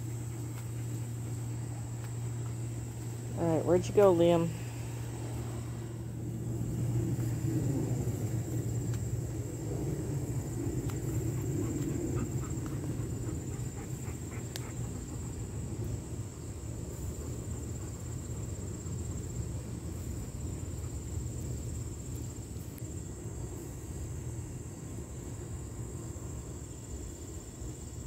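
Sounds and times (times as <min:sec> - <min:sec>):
constant low rumble: 0:00.0 - 0:28.0
insects trilling: 0:00.0 - 0:28.0
faint ticks: 0:14.4 - 0:14.8.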